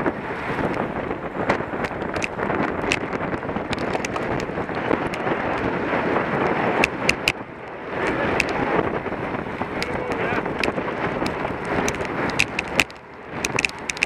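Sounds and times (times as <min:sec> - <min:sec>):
wind buffeting microphone: 0:00.0 - 0:14.0
sharp ticks: 0:06.4 - 0:08.6, 0:09.5 - 0:14.0.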